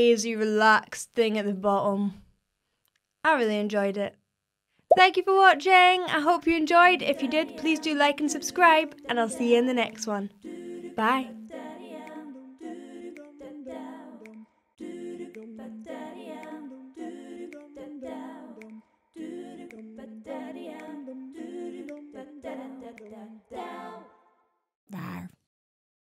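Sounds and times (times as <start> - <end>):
a cappella voices humming: 6.8 - 24.2.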